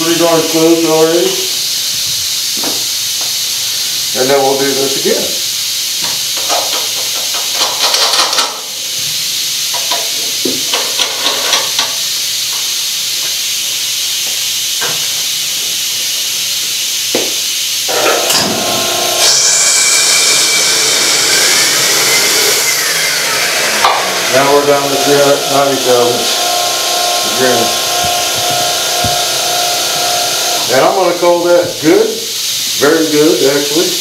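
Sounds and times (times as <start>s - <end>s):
turbo rising whine: 0.0s - 7.1s, 8.6s - 34.0s
balancing machine hiss: 0.0s - 34.0s
hood shutting: 23.8s - 32.1s.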